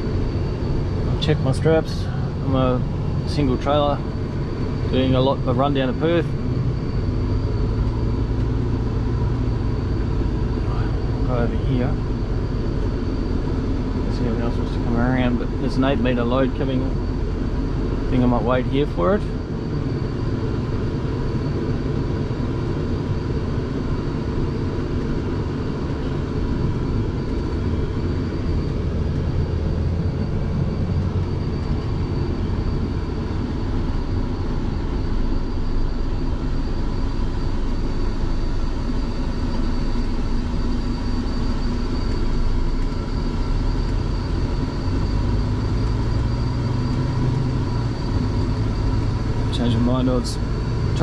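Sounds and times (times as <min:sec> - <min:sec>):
thin constant whine: 0:00.0 - 0:51.0
truck diesel engine rumble: 0:00.0 - 0:51.0.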